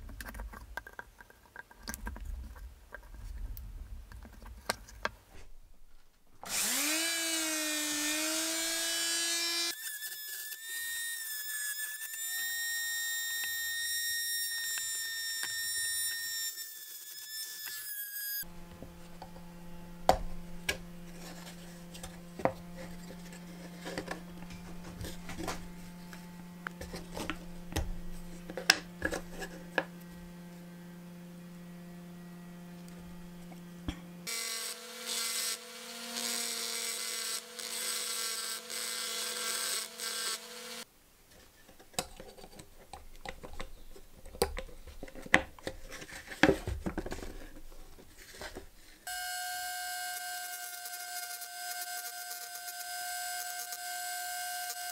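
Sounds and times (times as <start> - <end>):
rotary tool grinding metal: 6.4 - 40.9, 48.2 - 54.9
low hum: 18.5 - 34.3.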